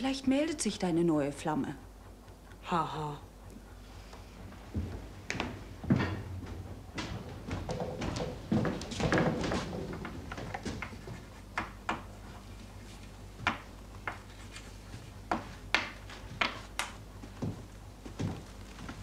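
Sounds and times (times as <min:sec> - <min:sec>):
sharp knocks and clicks: 0:04.8 - 0:12.1, 0:13.4 - 0:14.3, 0:15.3 - 0:17.6.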